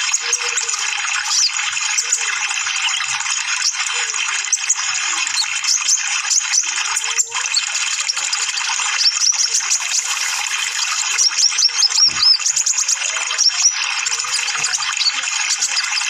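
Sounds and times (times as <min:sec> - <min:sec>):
sunbird twittering: 0:07.6 - 0:16.0.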